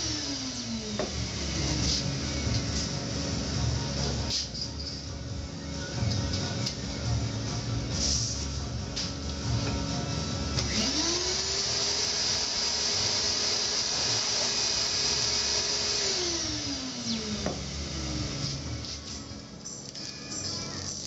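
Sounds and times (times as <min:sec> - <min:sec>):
vacuum blower hissing: 0:00.0 - 0:04.6, 0:07.8 - 0:19.3.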